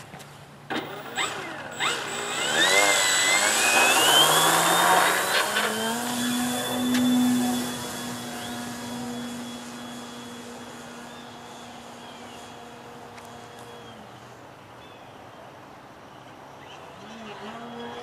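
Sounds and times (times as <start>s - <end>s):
electric model plane motor whine: 0.7s - 14.4s, 17.4s - 18.0s.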